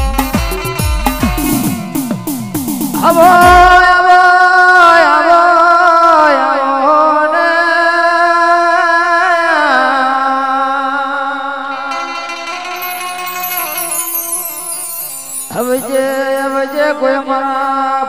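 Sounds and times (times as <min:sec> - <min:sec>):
low drum beats: 0:00.0 - 0:04.0.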